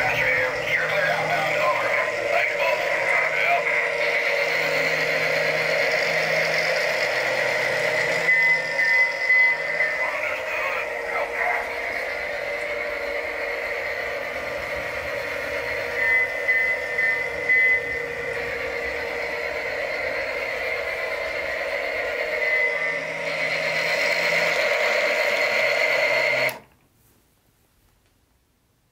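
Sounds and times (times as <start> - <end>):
toy train motor whirring: 0.0 - 26.6
short high beeping tones: 4.6 - 11.9.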